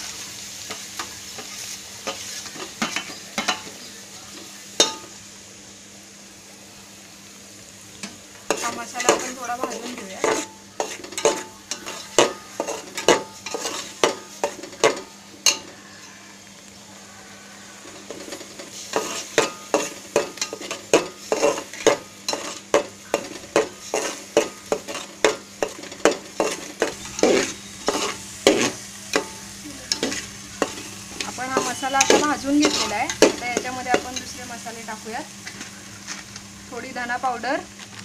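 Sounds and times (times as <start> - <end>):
low sizzle: 0.0 - 38.0
metal spoon scraping pot: 8.5 - 16.2, 18.0 - 28.8, 29.9 - 34.4.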